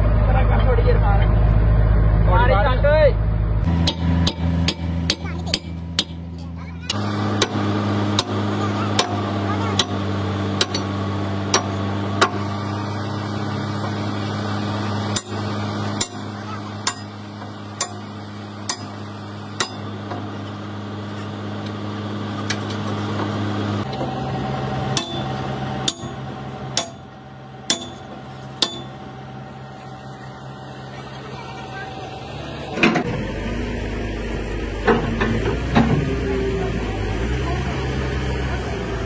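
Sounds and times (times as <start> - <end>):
excavator engine running: 0.0 - 39.0
steel track links clacking: 24.9 - 29.1.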